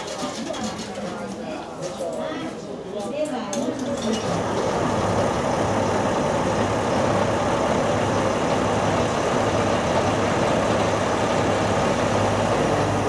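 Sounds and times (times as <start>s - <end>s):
diesel engine idling: 4.4s - 13.0s.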